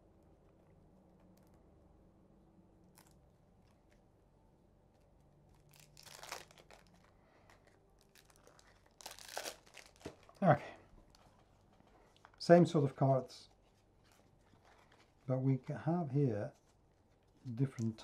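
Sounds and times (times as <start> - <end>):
wrapping crinkling: 2.9 - 4.0, 4.9 - 18.0.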